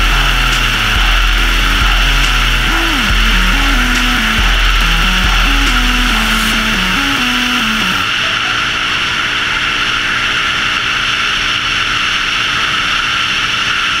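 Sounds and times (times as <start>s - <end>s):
single-cylinder engine running: 0.0s - 7.9s.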